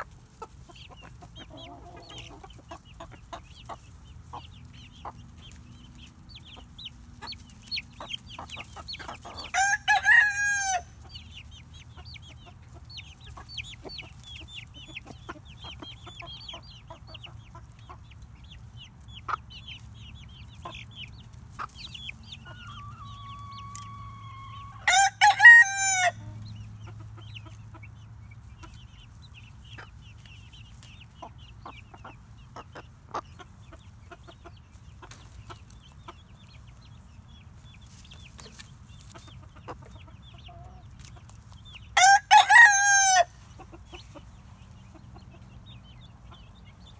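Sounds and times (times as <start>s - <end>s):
chickens clucking: 0.0s - 46.9s
rooster crowing: 9.5s - 10.9s, 22.5s - 26.3s, 42.0s - 43.3s.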